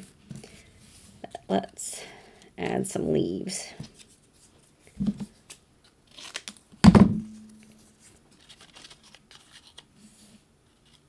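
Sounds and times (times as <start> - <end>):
paper rustling and crinkling: 3.8 - 6.6, 7.7 - 11.0
sharp thump: 6.8 - 7.4.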